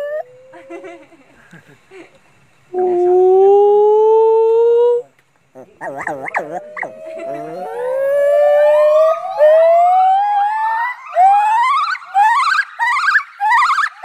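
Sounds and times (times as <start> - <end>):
gibbon singing whistled notes: 5.8 - 14.0.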